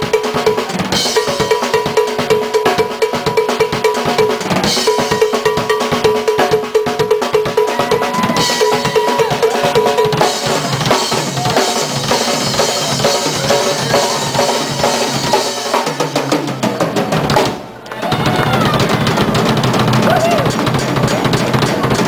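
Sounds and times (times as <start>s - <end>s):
cymbals: 0.0s - 17.6s
drum kit solo: 0.0s - 22.0s
bell-like percussion strikes: 1.0s - 6.6s.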